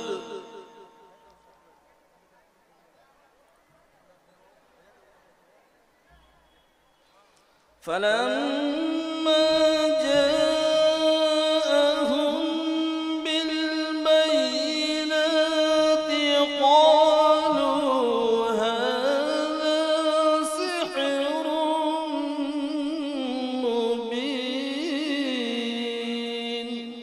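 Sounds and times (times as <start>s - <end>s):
man chanting into a microphone: 0.0s - 1.5s, 7.8s - 27.0s.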